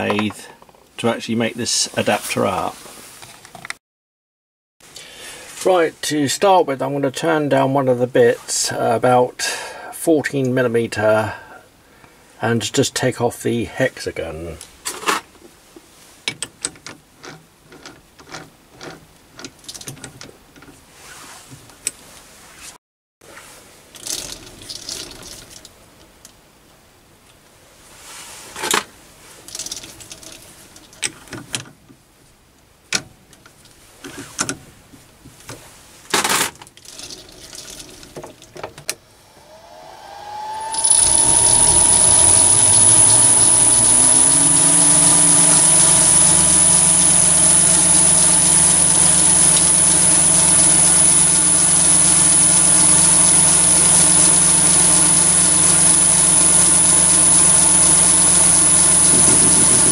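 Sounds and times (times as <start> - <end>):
lathe motor whining: 39.2 - 59.9.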